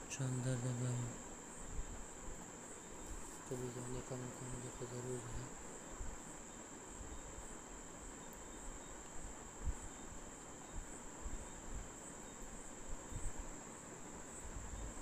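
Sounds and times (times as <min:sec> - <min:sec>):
high-pitched insect drone: 0:00.1 - 0:07.5.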